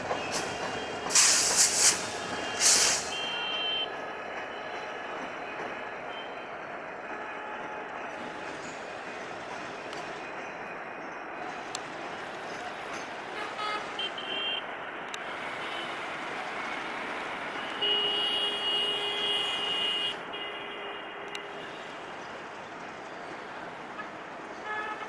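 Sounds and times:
steady background noise: 0:00.0 - 0:25.0
horn tooting: 0:13.3 - 0:14.7.

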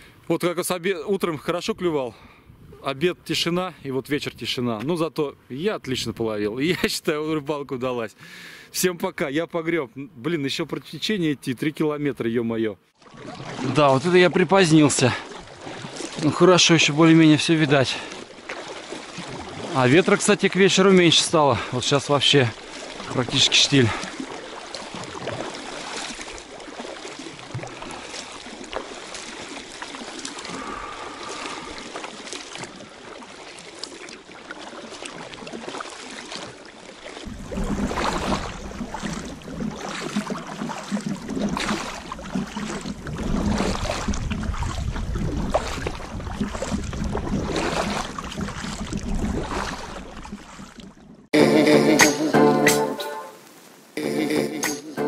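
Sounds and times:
kayak paddle splashing in water: 0:12.9 - 0:51.4.

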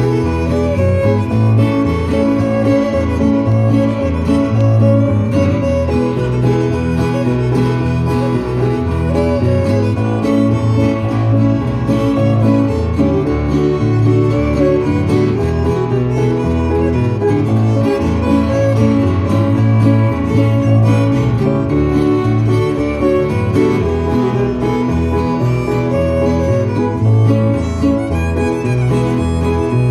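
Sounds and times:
bass line: 0:00.0 - 0:29.9
fiddle playing melody: 0:00.0 - 0:29.9
strummed acoustic guitar: 0:00.0 - 0:29.9.

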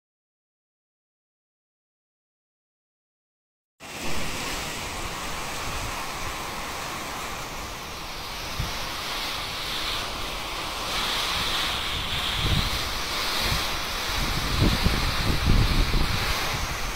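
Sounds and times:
wind and rain: 0:03.8 - 0:16.9
wind buffeting microphone: 0:03.9 - 0:16.9.

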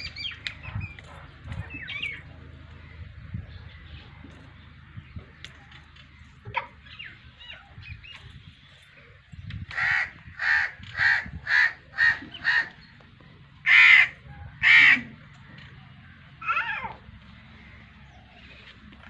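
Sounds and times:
crow cawing: 0:09.7 - 0:12.8, 0:13.6 - 0:15.7.

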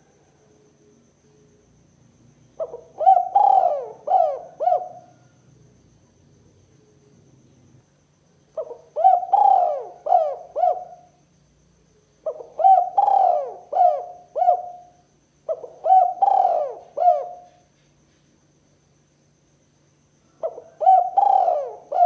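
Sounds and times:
dove cooing: 0:02.6 - 0:05.3, 0:08.6 - 0:11.1, 0:12.2 - 0:17.6, 0:20.4 - 0:22.0.

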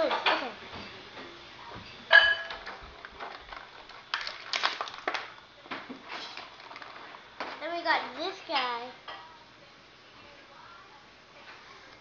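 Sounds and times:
plastic packaging crinkling: 0:02.6 - 0:07.7.

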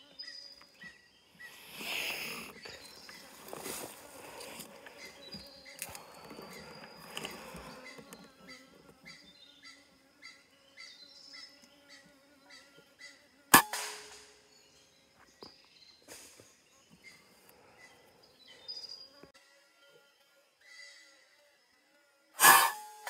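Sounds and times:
air rifle shot: 0:13.6 - 0:14.4.

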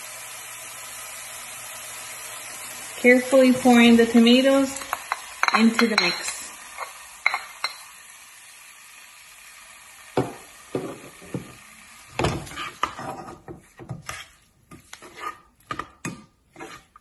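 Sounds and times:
spoon scraping a saucepan: 0:12.4 - 0:17.0.

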